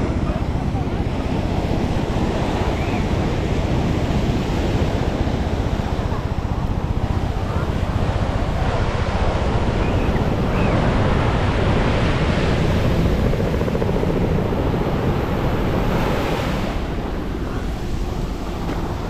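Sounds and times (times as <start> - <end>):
ocean surf breaking: 0.0 - 19.0
wind buffeting microphone: 0.0 - 19.0.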